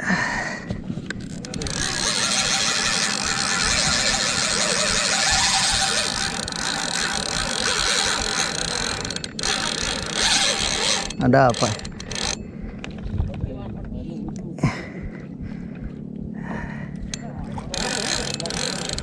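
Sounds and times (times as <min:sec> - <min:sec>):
fishing reel whirring: 0:01.1 - 0:12.4, 0:17.0 - 0:19.0.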